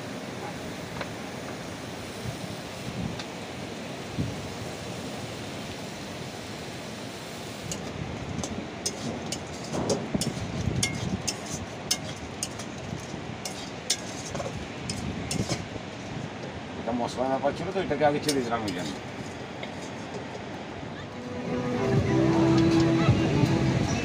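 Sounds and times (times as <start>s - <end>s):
steady rushing noise: 0.0s - 24.0s
metal spoon clinking on wok: 7.7s - 14.3s.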